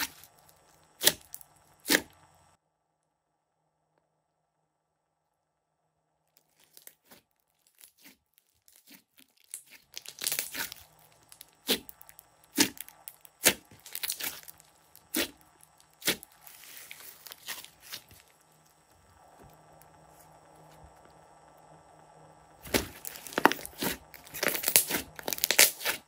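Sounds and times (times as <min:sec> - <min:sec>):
slime squeezed by hand: 0:01.0 - 0:02.1, 0:06.5 - 0:18.3, 0:22.6 - 0:26.0
soft crackling: 0:06.4 - 0:21.5.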